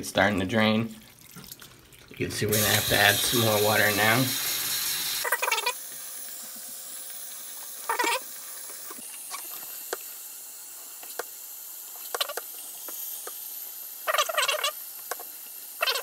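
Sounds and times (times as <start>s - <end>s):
water hissing through hose: 2.5s - 5.8s, 7.5s - 16.0s.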